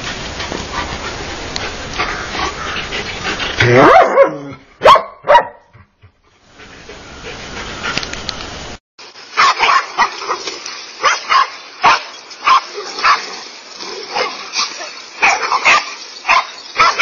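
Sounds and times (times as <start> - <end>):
steady hiss: 0.0 - 3.6, 6.2 - 17.0
dogs barking: 3.6 - 5.8, 9.3 - 13.4, 14.0 - 17.0.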